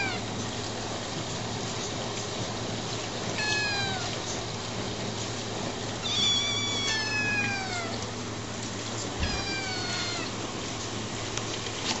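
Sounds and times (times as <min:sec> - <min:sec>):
kittens meowing: 0:03.4 - 0:04.1, 0:06.0 - 0:08.1, 0:09.2 - 0:10.4.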